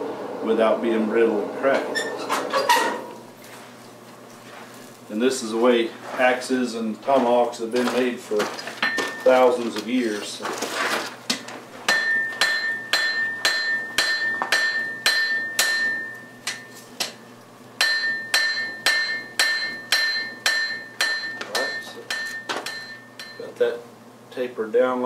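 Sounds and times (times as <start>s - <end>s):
anvil ringing: 11.9s - 16.8s, 17.8s - 23.5s
hammer striking steel on anvil: 11.9s - 17.2s, 17.8s - 23.5s.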